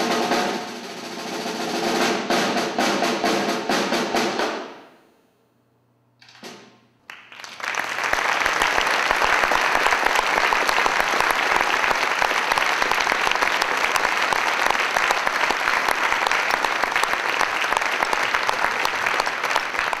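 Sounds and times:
audience applauding: 7.0 - 20.0.

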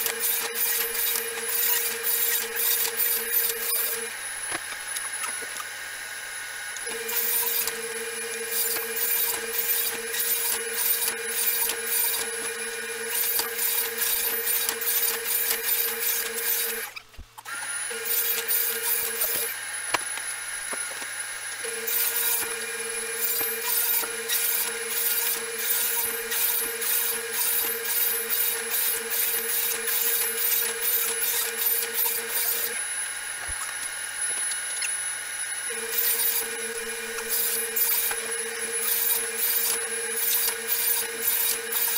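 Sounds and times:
saw blade rasping through wood: 0.0 - 4.1, 6.9 - 16.9, 21.8 - 32.8, 35.7 - 41.9
table saw motor whine: 0.0 - 41.9.

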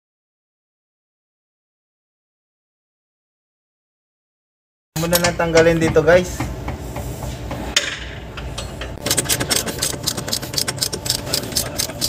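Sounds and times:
ratchet wrench clicking rapidly: 9.0 - 12.0.

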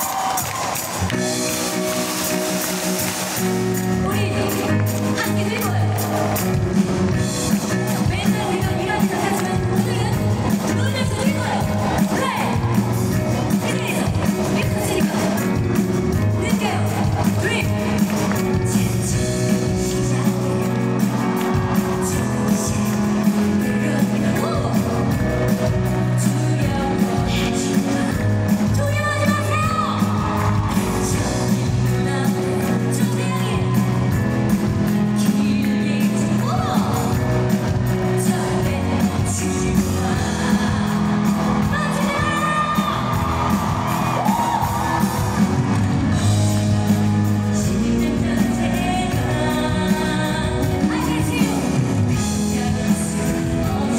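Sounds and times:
bass and electric guitar: 0.0 - 53.9
drums keeping a steady beat: 0.0 - 53.9
live pop band: 0.0 - 53.9
person singing: 16.3 - 33.9, 35.0 - 45.0, 47.4 - 53.9
women singing: 26.2 - 30.0, 38.0 - 43.2, 47.6 - 53.9.

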